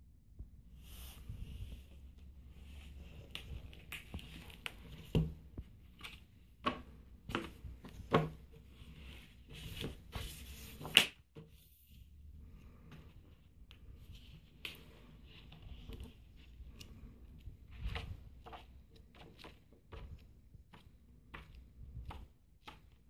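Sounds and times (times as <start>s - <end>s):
book pages rustling: 0.8s - 23.0s
slaps of pages and cover: 3.3s - 8.4s, 9.7s - 11.4s.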